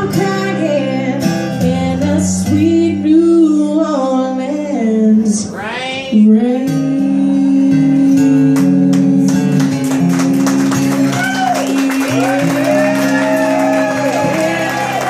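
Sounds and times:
woman singing: 0.0s - 9.8s
strummed acoustic guitar: 0.0s - 15.0s.

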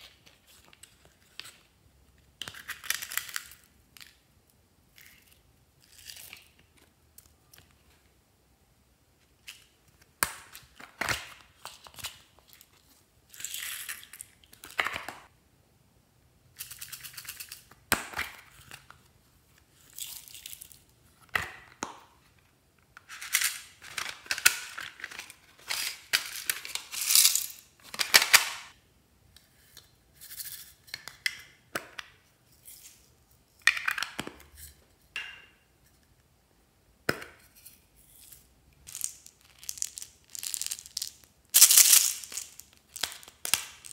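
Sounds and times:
sequins sprinkling rustles: 38.9s - 42.6s.

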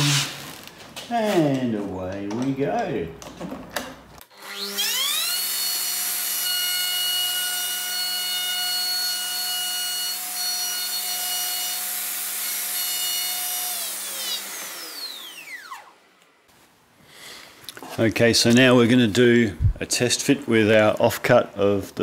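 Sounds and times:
router whining: 4.2s - 16.4s
router bit spinning down: 4.4s - 16.0s.

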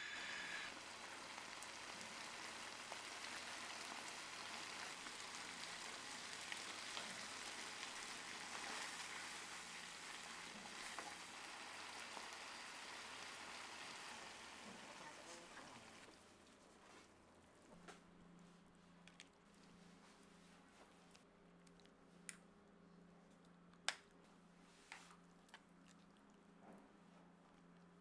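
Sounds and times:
stew sizzling in a frying pan: 0.2s - 16.1s.

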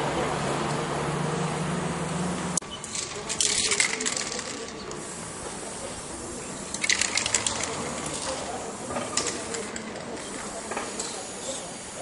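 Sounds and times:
spray-paint can rattling: 2.8s - 12.0s.

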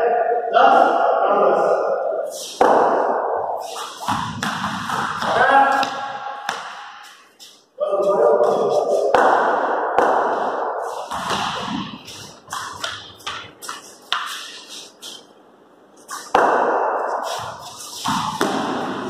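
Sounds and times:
cricket bat hitting ball: 2.6s - 3.3s, 4.0s - 7.0s, 9.1s - 14.3s, 16.3s - 19.0s.

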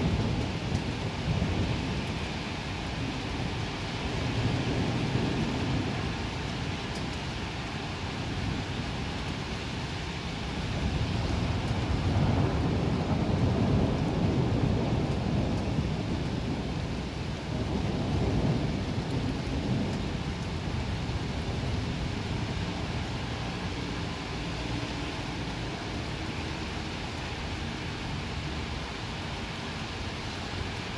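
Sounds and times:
rolling thunder: 0.0s - 6.7s, 10.5s - 24.1s
heavy rain: 0.0s - 30.9s.

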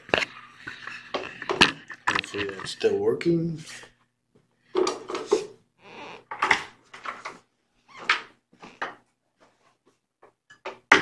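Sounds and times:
objects knocking and clattering: 0.0s - 2.8s, 4.7s - 5.6s, 6.2s - 7.4s, 10.2s - 11.0s.

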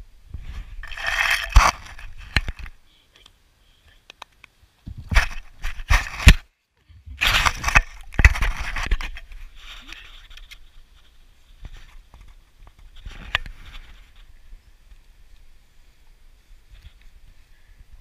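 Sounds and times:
rustling in grass: 7.2s - 18.0s.

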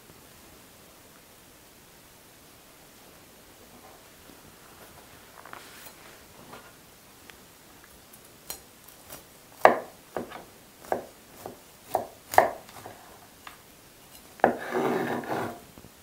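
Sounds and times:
knife scraping through crunchy crust: 14.1s - 15.6s.

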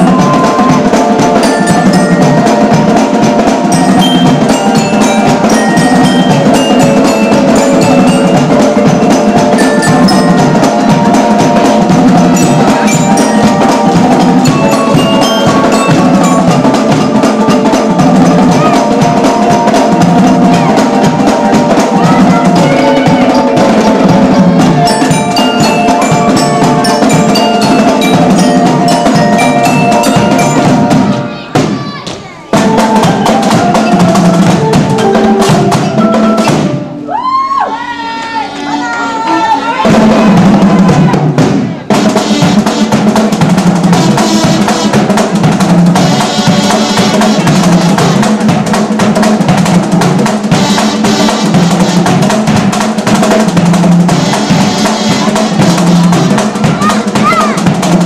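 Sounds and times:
glockenspiel-like melody: 0.0s - 31.4s, 32.5s - 37.0s
snare drums rapid beat: 0.0s - 37.0s, 39.8s - 58.0s
marching band playing: 0.0s - 58.0s.

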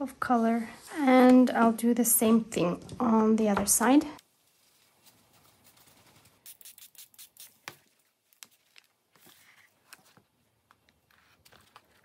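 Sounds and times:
brush pen strokes on paper: 4.4s - 7.8s.

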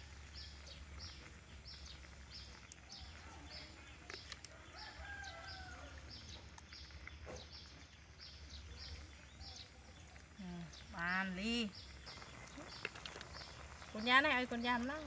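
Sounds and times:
faint rooster crowing: 4.4s - 6.3s.

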